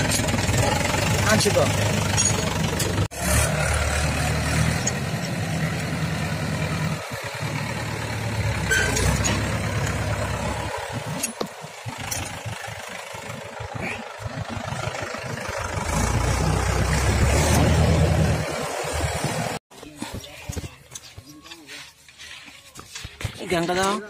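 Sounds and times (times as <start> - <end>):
engine humming: 0.0 - 21.6.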